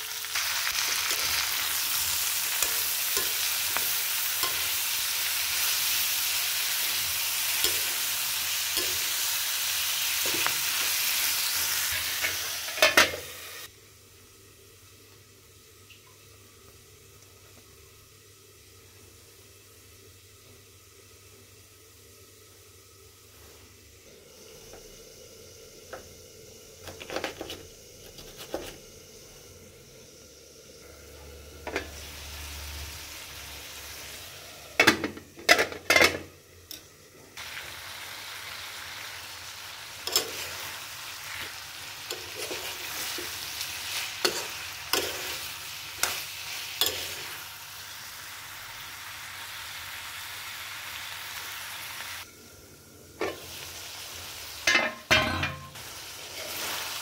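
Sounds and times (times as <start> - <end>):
food sizzling in a pan: 0.0 - 14.8, 15.5 - 57.0
metal spoon clinking against pan: 54.7 - 55.8.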